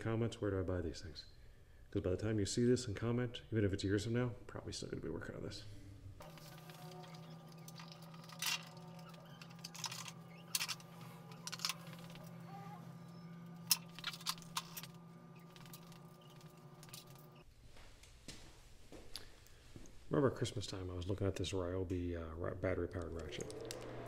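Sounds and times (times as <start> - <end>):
steady low hum: 5.2 - 24.0.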